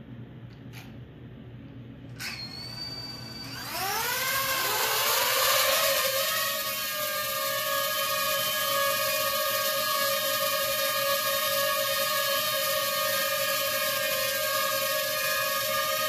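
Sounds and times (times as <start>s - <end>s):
small electric motor whining: 2.2s - 16.0s.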